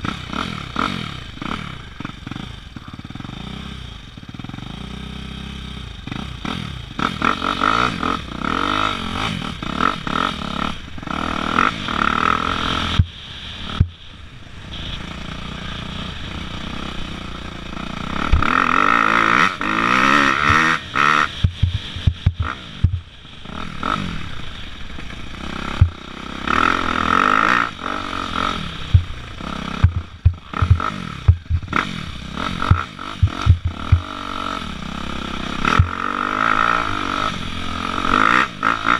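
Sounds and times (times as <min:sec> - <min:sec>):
dirt bike engine revving: 0:00.0 - 0:38.9
bike knocking and rattling: 0:20.4 - 0:23.1, 0:29.8 - 0:31.9, 0:32.6 - 0:34.2.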